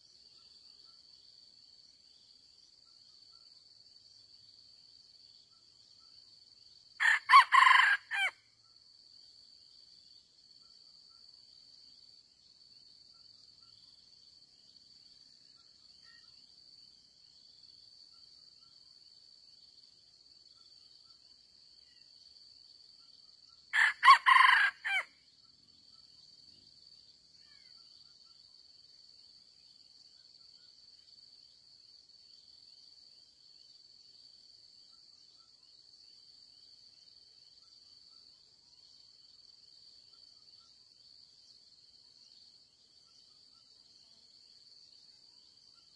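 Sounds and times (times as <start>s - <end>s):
rooster crowing: 7.0s - 8.4s, 23.7s - 25.1s.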